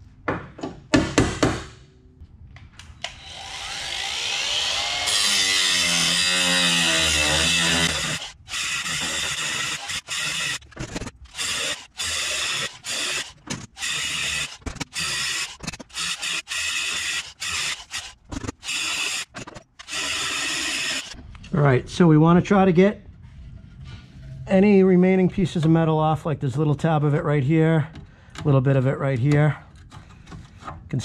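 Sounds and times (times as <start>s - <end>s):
power tool cutting metal: 3.0s - 21.2s.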